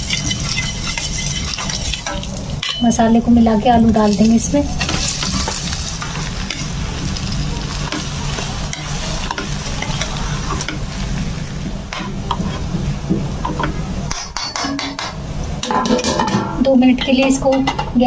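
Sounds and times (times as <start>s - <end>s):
spoon stirring and scraping potatoes: 0.0s - 2.8s, 4.0s - 10.9s
oil sizzling: 0.0s - 14.2s.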